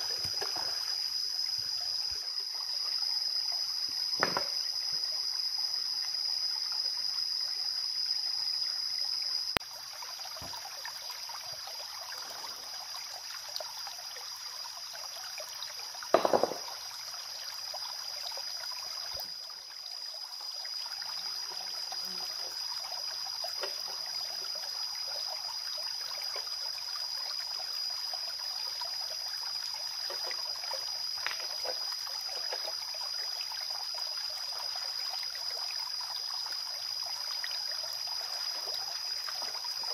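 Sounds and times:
stream trickling over rocks: 0.0 - 39.9
sharp knocks: 4.2 - 4.5, 16.2 - 16.6.

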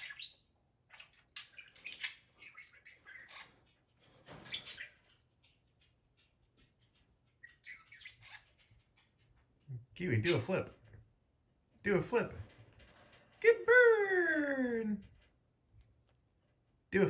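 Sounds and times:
budgerigar chirping: 0.0 - 3.6, 7.4 - 8.7.

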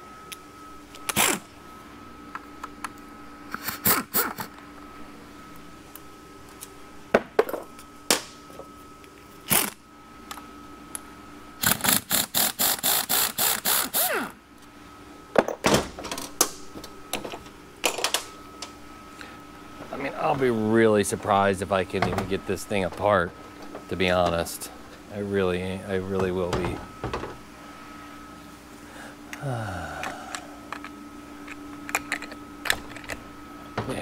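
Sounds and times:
faint steady hum: 0.0 - 34.0.

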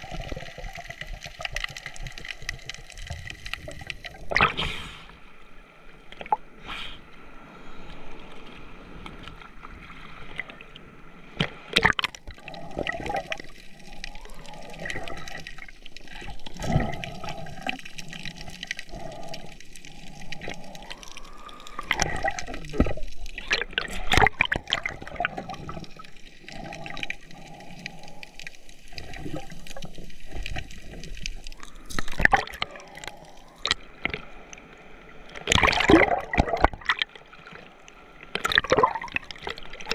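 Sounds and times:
sea water sloshing in surf: 35.2 - 39.9.

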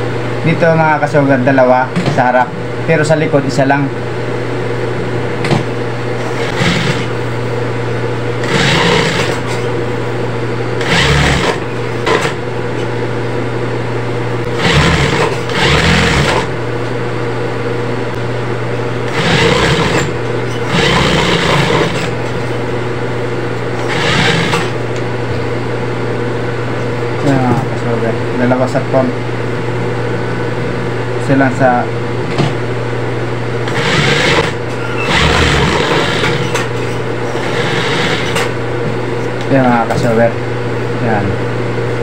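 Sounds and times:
steady hum: 0.0 - 42.0
sewing machine stitching: 6.3 - 7.1, 8.4 - 9.5, 10.8 - 12.4, 14.6 - 16.5, 19.1 - 22.1, 23.8 - 24.8, 33.7 - 36.7, 37.4 - 38.5.

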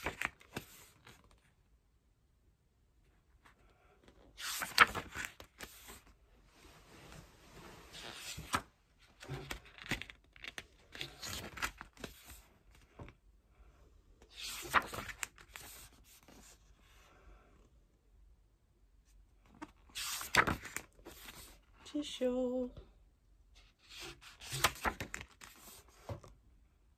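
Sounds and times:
glossy pages turning: 0.0 - 1.4, 4.3 - 6.1, 7.9 - 12.8, 14.3 - 16.5, 19.5 - 21.6, 23.9 - 25.9.

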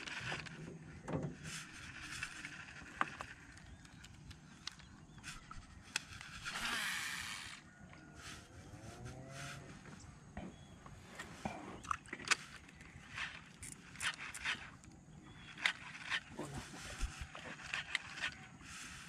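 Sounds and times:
fishing reel whirring: 5.3 - 7.7.

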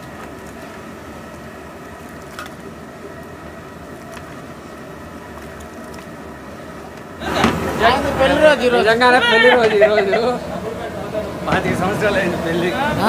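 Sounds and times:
pot boiling and bubbling: 0.0 - 8.7.

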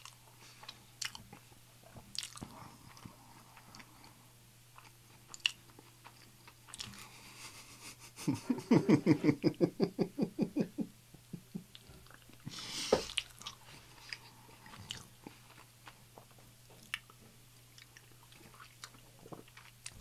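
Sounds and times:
man giggling: 7.4 - 11.8.

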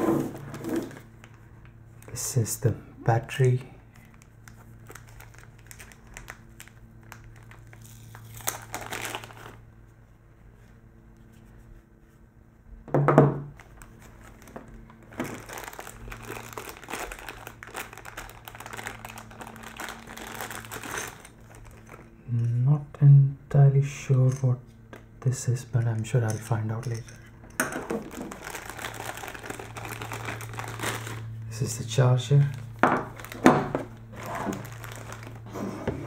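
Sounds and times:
plastic bags crinkling: 0.2 - 1.7, 3.9 - 9.6, 13.6 - 22.2, 27.6 - 31.4, 32.4 - 35.6.

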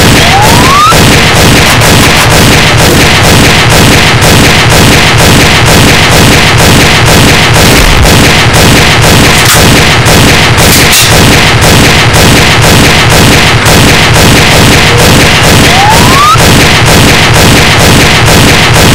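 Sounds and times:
music with a driving beat: 0.0 - 18.9.

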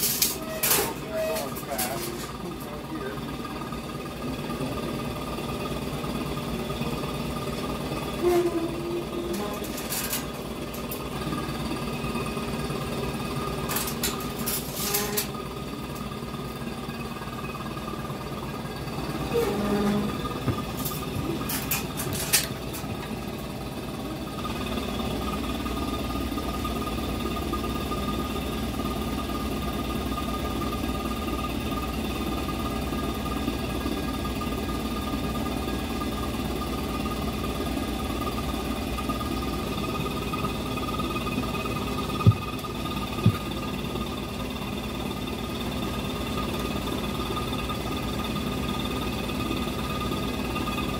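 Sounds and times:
short clatters: 19.3 - 23.2.

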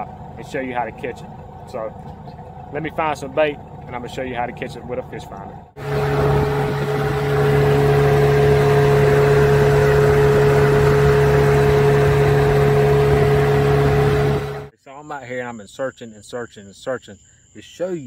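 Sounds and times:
outboard motor running: 0.0 - 14.7.

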